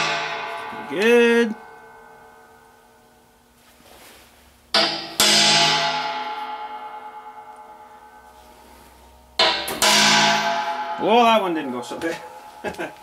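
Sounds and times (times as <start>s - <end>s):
metal tank ringing: 0.0s - 3.3s, 4.7s - 13.0s
hammer striking metal punch: 4.7s - 8.2s, 9.4s - 12.4s.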